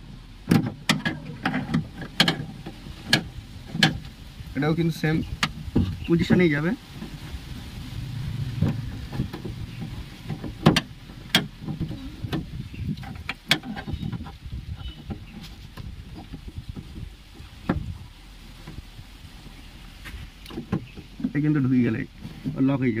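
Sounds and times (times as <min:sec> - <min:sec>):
low background rumble: 0:00.0 - 0:23.0
metallic clicks and knocks: 0:00.4 - 0:04.2, 0:08.6 - 0:17.9.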